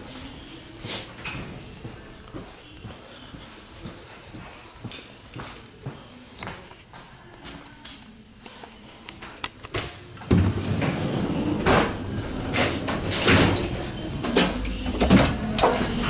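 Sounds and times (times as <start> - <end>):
train door opening: 10.3 - 16.0.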